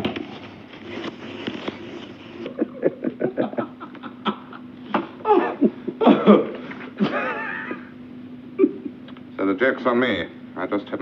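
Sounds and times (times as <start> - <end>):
man laughing: 2.4 - 9.0.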